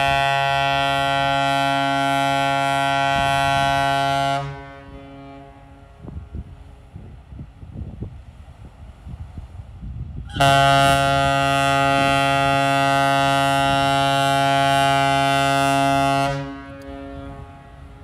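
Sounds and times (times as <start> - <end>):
fireboat horn blast: 0.0 - 6.3, 10.3 - 18.0.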